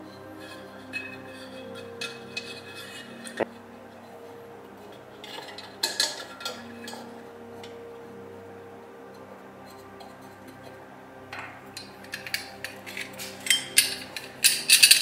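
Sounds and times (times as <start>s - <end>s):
metal clinks and scrapes: 0.3s - 3.5s, 5.2s - 7.2s, 11.3s - 15.0s.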